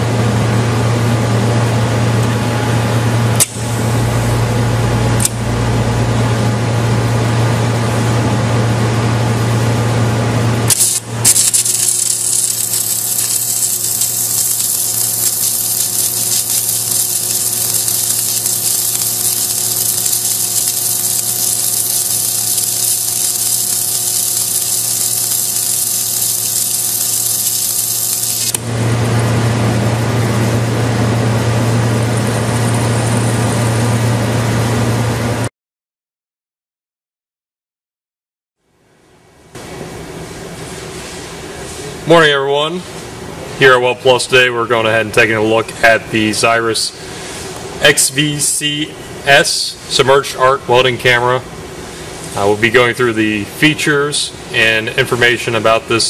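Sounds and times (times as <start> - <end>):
welding equipment humming: 0.9 - 35.5
welding arc hissing: 3.3 - 6.1, 10.7 - 28.8.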